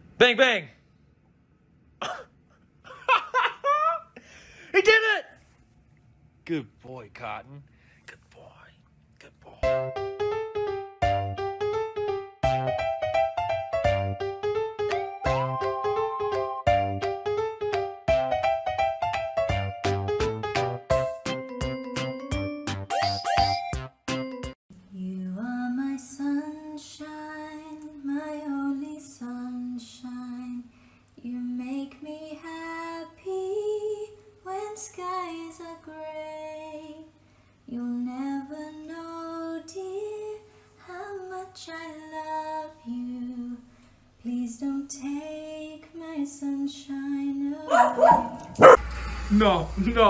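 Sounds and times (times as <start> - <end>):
woman singing: 24.9 - 37.1, 37.7 - 48.4.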